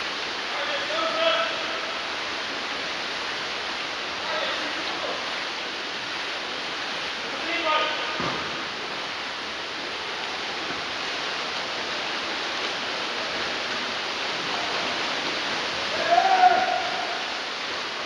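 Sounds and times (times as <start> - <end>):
swimmers splashing in a pool: 0.0 - 18.0
person shouting: 15.9 - 17.3.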